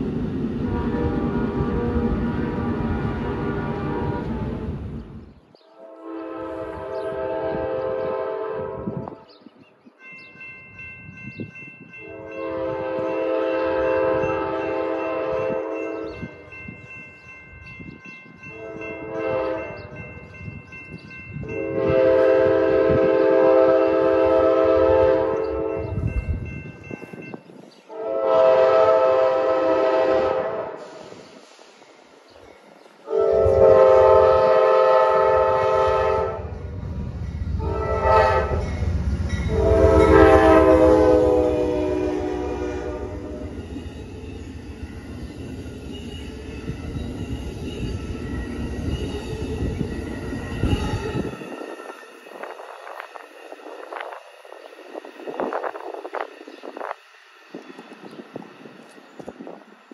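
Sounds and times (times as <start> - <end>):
locomotive and wheels rumbling: 0.0 - 59.9
locomotive air horn blasts: 0.6 - 4.7, 5.7 - 9.3, 12.0 - 16.4, 18.5 - 19.9, 21.5 - 26.0, 27.9 - 31.2, 33.1 - 36.6, 37.6 - 38.7, 39.4 - 43.7.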